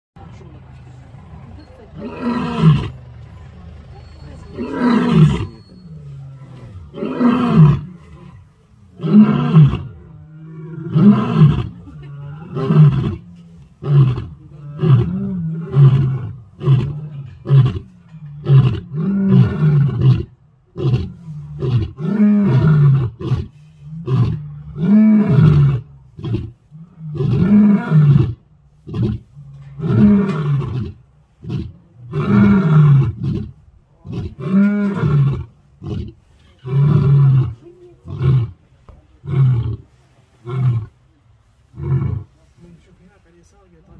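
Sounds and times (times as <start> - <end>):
lions roaring: 6.2 - 38.6.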